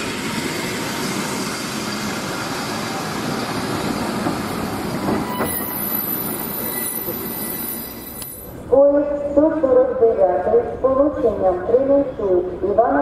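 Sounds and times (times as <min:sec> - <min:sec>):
train wheels rumbling on rails: 0:00.0 - 0:08.7
high squeal of wheels and brakes: 0:05.2 - 0:08.5.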